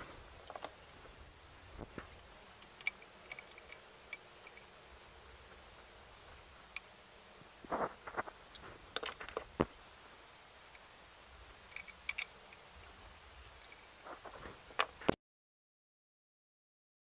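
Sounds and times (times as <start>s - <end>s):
screwdriver clicking on metal parts: 0.0s - 0.8s, 1.8s - 4.7s, 8.5s - 9.7s, 11.7s - 12.6s.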